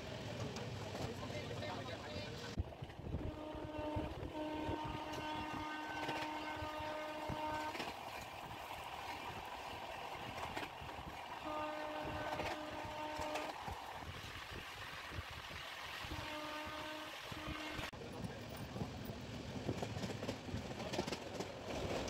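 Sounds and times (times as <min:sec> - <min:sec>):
train rumbling on rails: 0:00.0 - 0:22.0
train horn blasts: 0:03.2 - 0:08.0, 0:11.4 - 0:13.6, 0:16.0 - 0:17.9.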